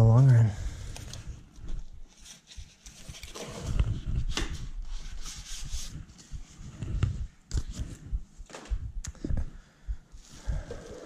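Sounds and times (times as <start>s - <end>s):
cardboard rustling and scraping: 1.6s - 8.1s.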